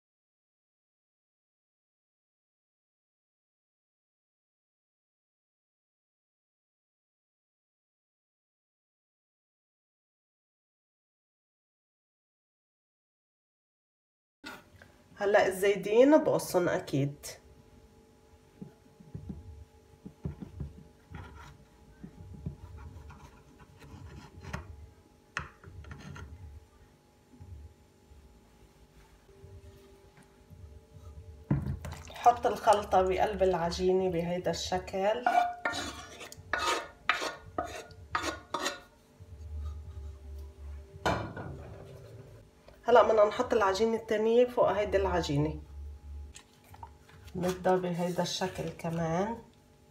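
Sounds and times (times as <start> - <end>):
wooden spoon scraping a pot: 21.1 - 21.7, 22.4 - 24.7, 25.6 - 26.4, 35.1 - 40.5
knife scraping glass dish: 25.8 - 26.4, 35.2 - 38.9.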